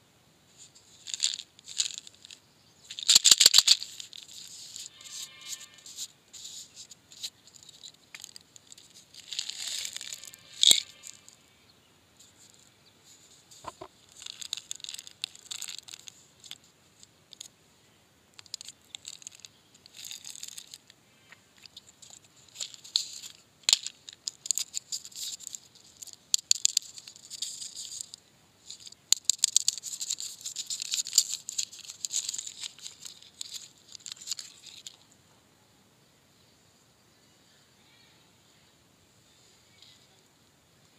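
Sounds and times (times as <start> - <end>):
plastic wrappers crinkling: 0.9 - 11.3, 13.3 - 16.6, 18.4 - 20.9, 21.6 - 35.0.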